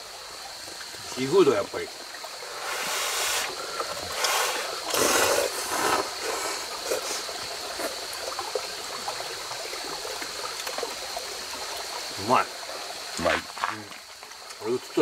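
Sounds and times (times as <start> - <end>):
noodles being slurped: 4.2 - 7.2.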